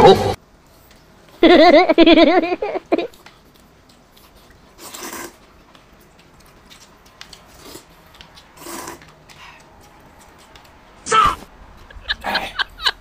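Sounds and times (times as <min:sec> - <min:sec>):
noodles being slurped: 0:04.0 - 0:10.5.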